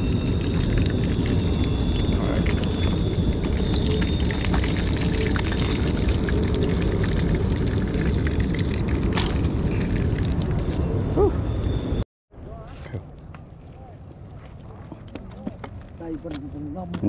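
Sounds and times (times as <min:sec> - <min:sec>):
hot oil crackling in frying pan: 0:00.0 - 0:10.6.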